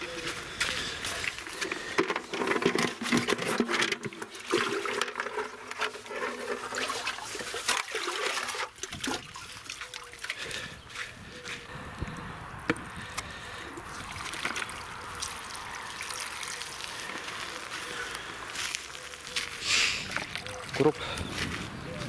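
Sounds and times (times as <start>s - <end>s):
water pouring and splashing: 1.0s - 11.2s, 13.8s - 18.0s
clatter and knocks: 2.0s - 6.6s.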